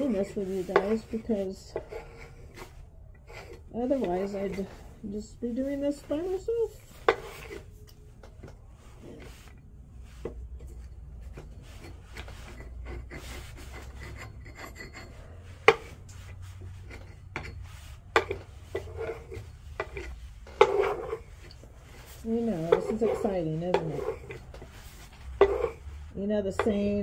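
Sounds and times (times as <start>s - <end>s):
putty knife scraping paint: 0.0s - 4.9s, 11.2s - 27.0s.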